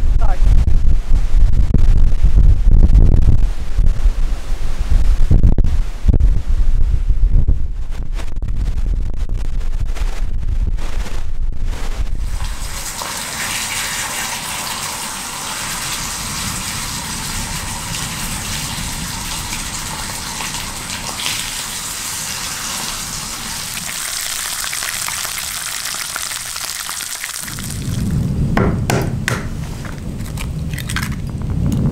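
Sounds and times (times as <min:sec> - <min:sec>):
meat sizzling in a frying pan: 0:12.2 - 0:28.1.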